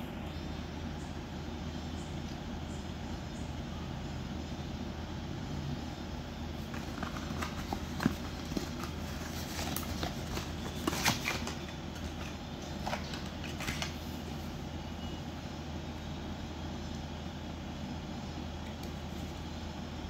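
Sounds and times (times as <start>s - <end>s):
steady low hum: 0.0s - 20.0s
cardboard packaging rustling: 6.6s - 14.4s.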